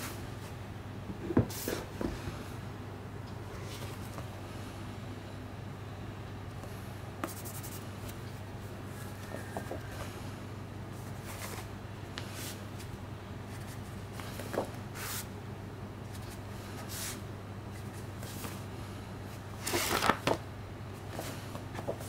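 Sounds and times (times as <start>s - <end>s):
steady low hum: 0.0s - 22.0s
book cover and pages rustling: 11.0s - 12.9s, 19.6s - 20.4s, 21.0s - 22.0s.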